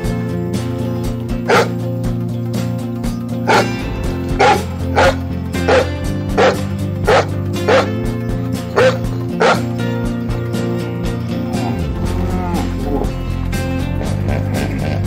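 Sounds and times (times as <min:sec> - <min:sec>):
background music: 0:00.0 - 0:15.0
dog barking: 0:01.4 - 0:01.8, 0:03.5 - 0:03.7, 0:04.3 - 0:08.0, 0:08.7 - 0:09.8.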